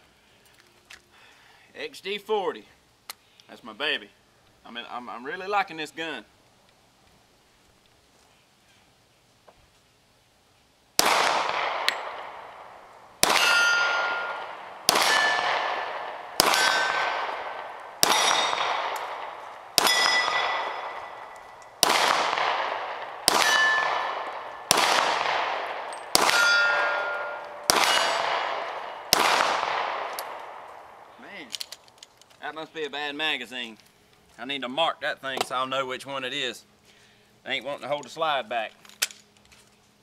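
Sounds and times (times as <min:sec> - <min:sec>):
pistol shots: 0:11.0 - 0:31.0
steel target ringing: 0:13.2 - 0:30.1.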